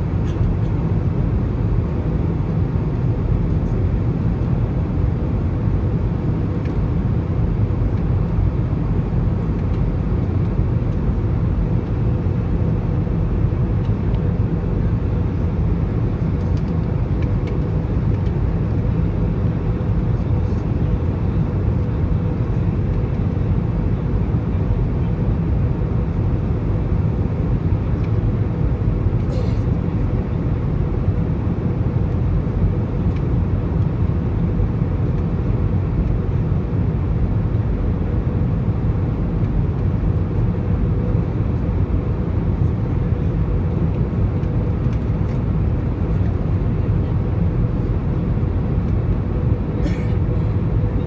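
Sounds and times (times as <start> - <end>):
aircraft cabin rumble: 0.0 - 51.0.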